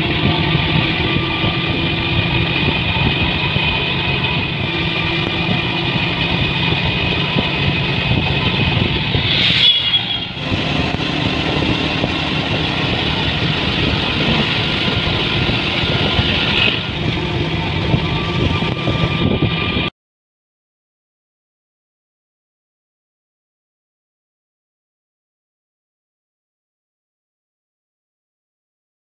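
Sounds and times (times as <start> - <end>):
motorcycle engine running: 0.0 - 19.9.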